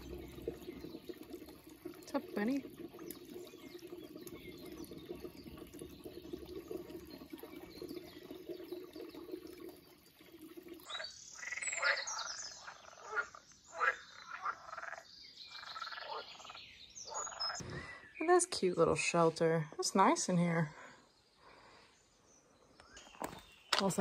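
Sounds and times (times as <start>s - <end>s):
frogs croaking: 0.0s - 7.1s, 10.8s - 17.6s.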